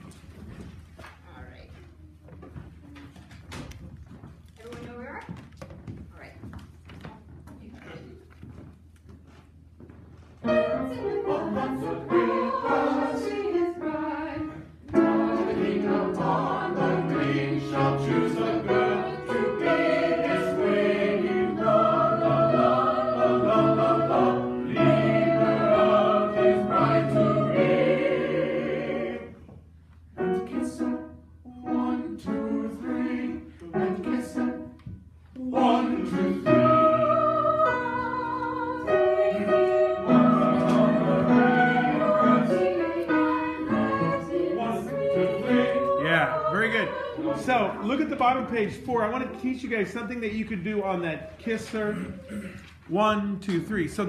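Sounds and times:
mixed choir singing: 0:10.4 - 0:29.6, 0:30.2 - 0:34.8, 0:35.4 - 0:48.4.

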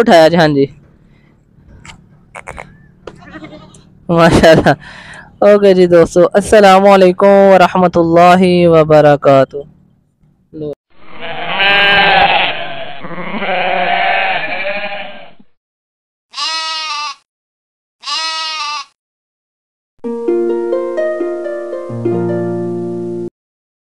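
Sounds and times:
sheep bleating: 0:02.4 - 0:03.9, 0:11.0 - 0:15.4, 0:16.3 - 0:17.3, 0:18.0 - 0:19.0.

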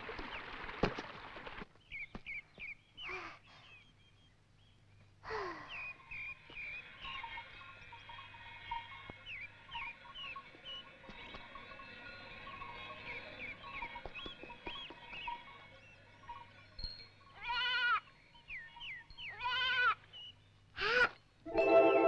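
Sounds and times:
stream water splash: 0:00.0 - 0:01.8
quiet background music: 0:04.6 - 0:20.8, 0:21.4 - 0:22.0.

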